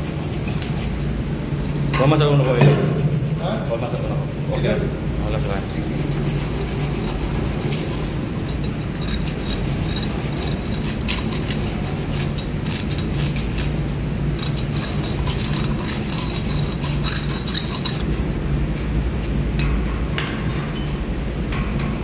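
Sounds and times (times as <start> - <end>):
steady low hum: 0.0 - 22.0
hand tool scraping metal pipe: 5.4 - 13.8, 14.4 - 18.0.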